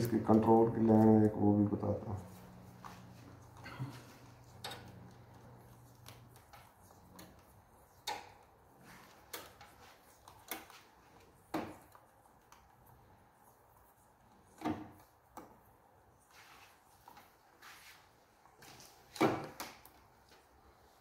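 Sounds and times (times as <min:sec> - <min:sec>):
wires clicking and knocking: 0:03.4 - 0:13.1.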